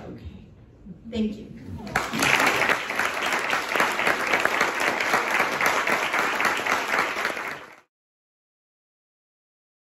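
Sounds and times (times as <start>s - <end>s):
audience applauding: 1.9s - 7.9s.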